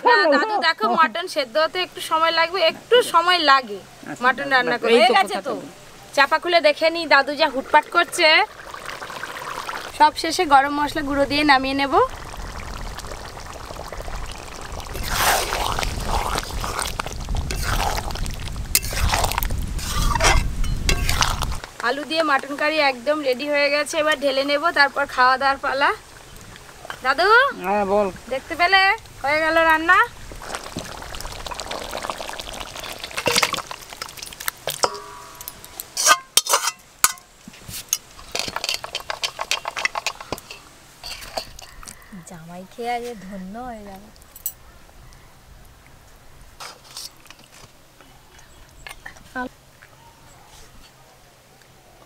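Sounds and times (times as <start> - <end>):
spatula scraping and sloshing curry: 14.9 - 21.6, 33.2 - 41.8
metal clink on a pot: 34.2 - 37.3, 37.9 - 41.8, 44.4 - 44.6
metal knock ringing: 34.8 - 36.3.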